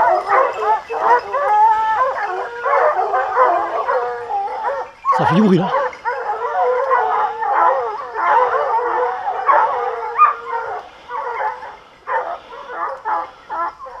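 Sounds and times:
hounds baying and howling: 0.0s - 14.0s.

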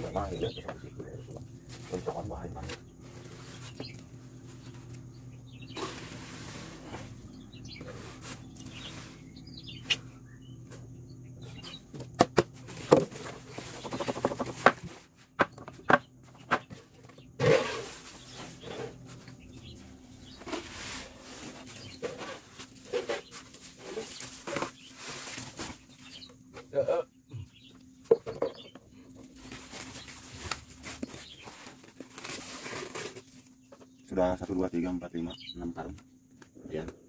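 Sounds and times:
plastic scoop scraping: 5.7s - 9.3s, 17.4s - 19.6s, 20.2s - 26.2s, 29.4s - 33.6s
plastic knocking on wood: 13.8s - 16.8s.

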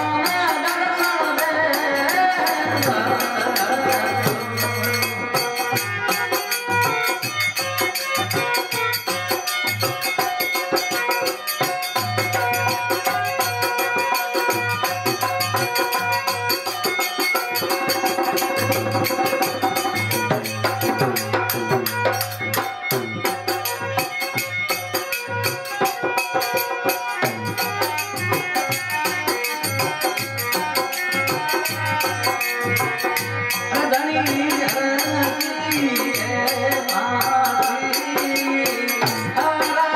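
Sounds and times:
person singing: 0.0s - 7.2s, 30.8s - 39.9s
drum and jingling percussion: 0.0s - 39.9s.

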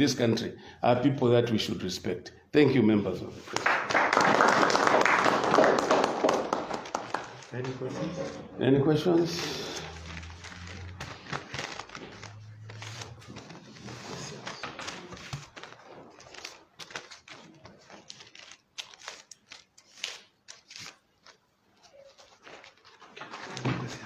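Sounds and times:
paper rustling and crinkling: 9.2s - 24.0s.

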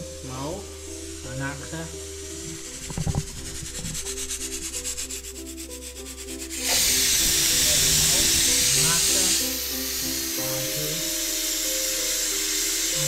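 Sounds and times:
rapid scraping: 1.6s - 9.6s.

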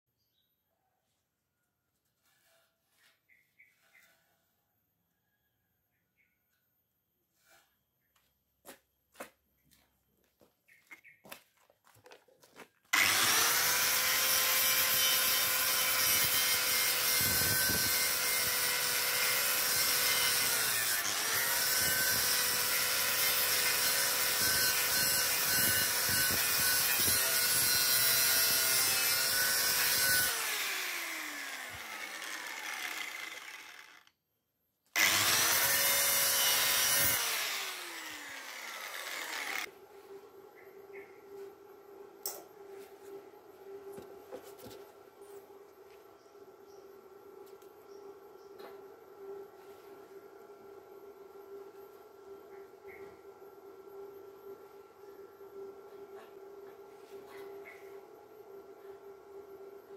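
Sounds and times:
grinder winding down: 12.9s - 34.2s, 35.0s - 39.7s
angle grinder grinding metal: 13.0s - 34.2s, 35.0s - 39.7s.

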